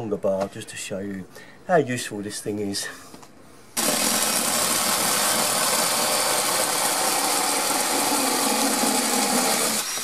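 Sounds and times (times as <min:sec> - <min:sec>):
chainsaw cutting log: 0:03.8 - 0:10.0.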